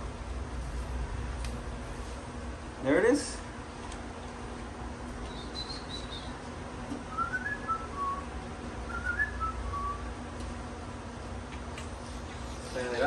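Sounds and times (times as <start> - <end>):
person whistling: 5.3 - 6.3, 7.1 - 8.3, 8.9 - 10.0.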